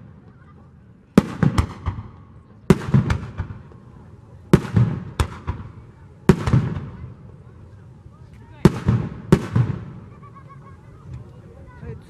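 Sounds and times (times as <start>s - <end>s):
smaller firework bangs: 1.1s - 7.4s, 8.6s - 10.3s
firework shells booming: 1.2s - 3.8s, 4.6s - 7.1s, 8.6s - 10.1s.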